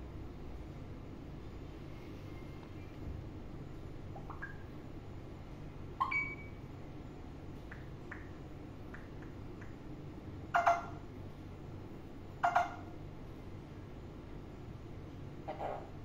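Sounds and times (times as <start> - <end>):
parakeet squawking: 10.6 - 11.0.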